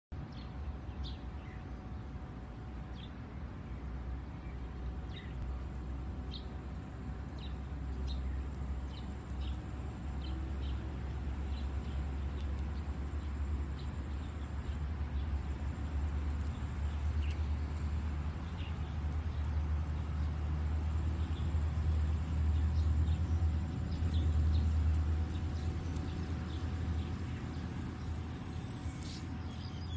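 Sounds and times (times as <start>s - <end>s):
steady low rumble: 0.1s - 29.9s
birds chirping: 0.3s - 29.9s.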